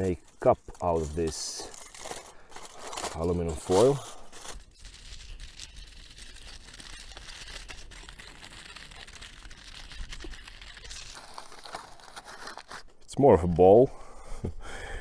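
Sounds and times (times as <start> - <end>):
aluminum foil crinkling: 0.0 - 13.1.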